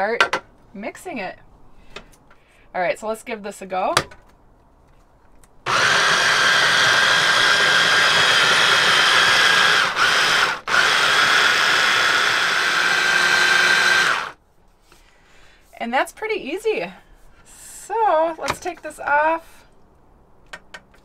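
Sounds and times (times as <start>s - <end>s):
hand blender motor whine: 5.7s - 14.4s.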